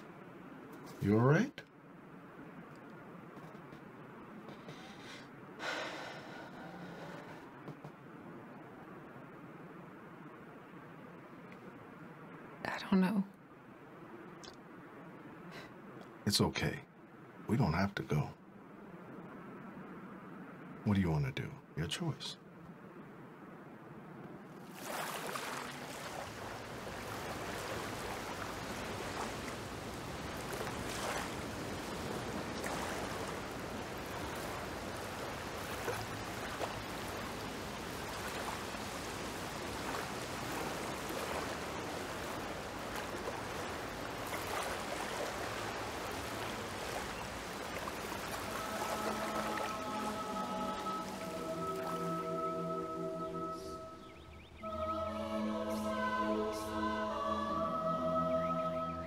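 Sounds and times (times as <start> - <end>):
waves washing against shore: 24.5 - 53.6
water splashes: 24.5 - 53.8
soft music: 47.9 - 59.0.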